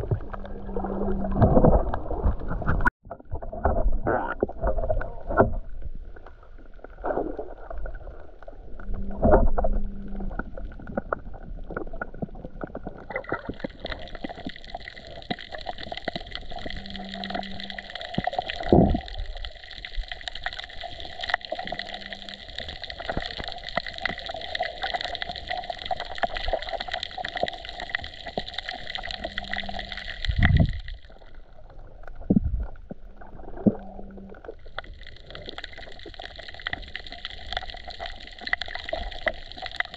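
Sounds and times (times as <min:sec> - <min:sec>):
steady whine: 0:00.0 - 0:02.9
low underwater thumps: 0:00.0 - 0:05.8, 0:32.2 - 0:33.0
underwater crackle of clicks: 0:00.0 - 0:39.9.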